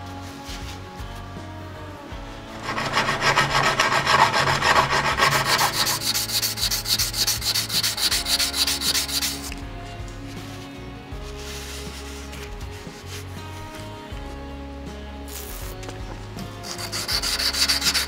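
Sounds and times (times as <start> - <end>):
abrasive scraping rusty steel: 2.2 - 9.6, 16.6 - 18.0.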